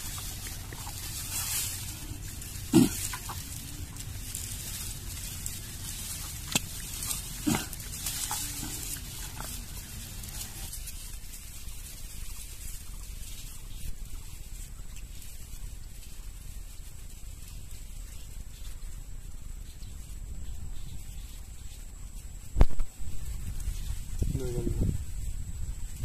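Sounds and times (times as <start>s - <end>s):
hands squelching through wet mud: 0.0s - 13.3s.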